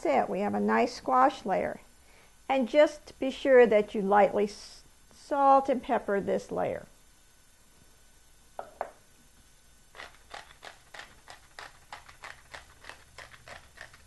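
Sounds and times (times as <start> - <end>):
pepper mill grinding: 9.9 - 14.0.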